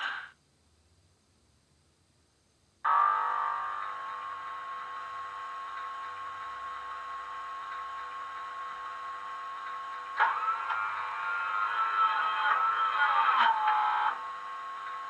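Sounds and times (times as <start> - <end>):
electric locomotive whine from speaker: 2.8 - 15.0.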